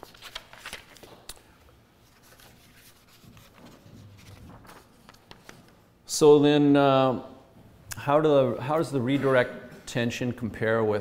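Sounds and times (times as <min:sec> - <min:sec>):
paper rustling: 0:00.0 - 0:05.8.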